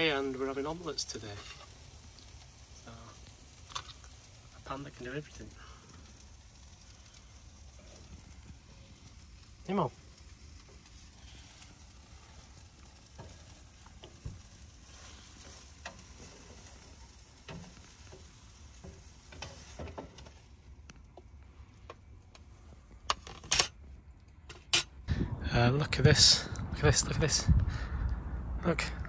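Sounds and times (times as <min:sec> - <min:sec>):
omelette sizzling in a pan: 0:00.0 - 0:21.9.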